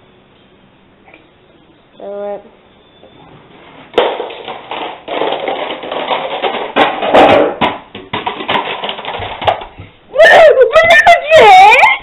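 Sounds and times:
plastic cases toppling like dominoes: 3.9s - 9.8s.

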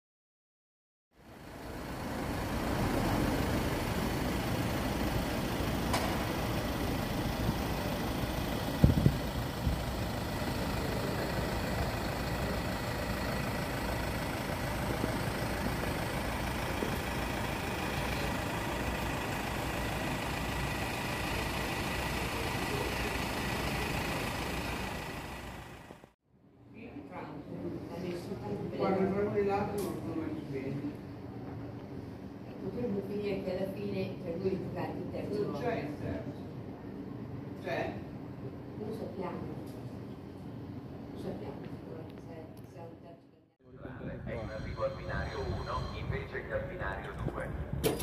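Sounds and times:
bus engine idling: 1.2s - 26.2s.

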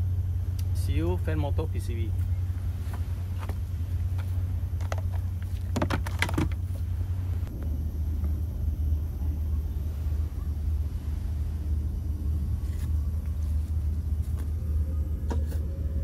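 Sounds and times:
air conditioning units humming: 0.0s - 16.0s
handling clicks and knocks: 4.8s - 6.6s.

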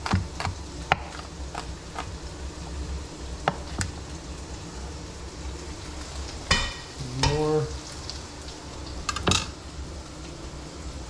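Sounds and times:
knife chopping on cutting board: 0.0s - 2.1s, 3.4s - 3.9s.

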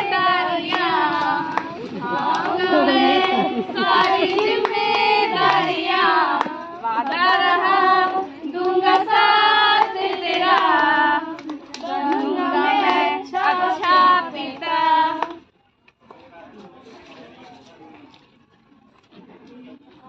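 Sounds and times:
women singing: 0.0s - 15.4s
group clapping hands: 0.0s - 16.3s.

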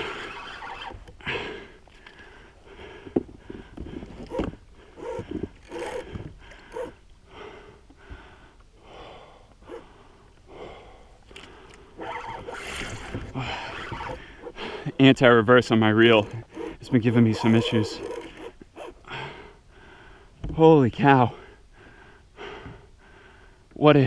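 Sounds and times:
man breathing hard: 1.2s - 12.0s, 13.3s - 15.0s, 17.7s - 20.4s, 21.3s - 23.7s.

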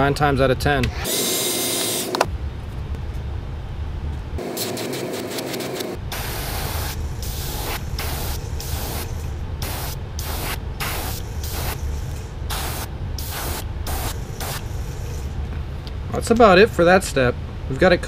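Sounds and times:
steady low hum: 0.0s - 18.0s
airbrush spraying hiss: 6.1s - 15.3s.

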